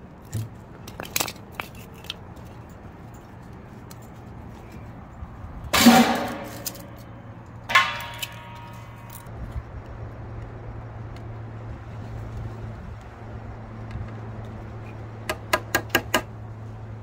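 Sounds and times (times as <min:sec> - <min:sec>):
wood clanging into metal fire pit: 0:05.7 - 0:07.1, 0:07.7 - 0:09.3.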